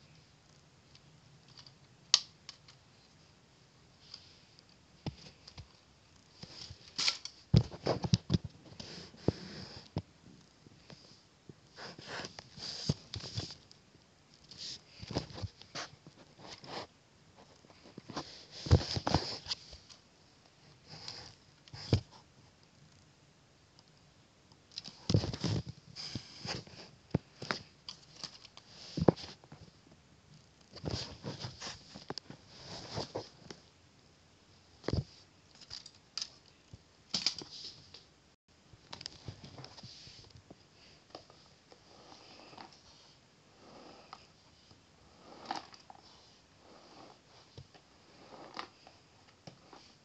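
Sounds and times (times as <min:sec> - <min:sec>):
soft rustling: 0:30.7 - 0:33.7.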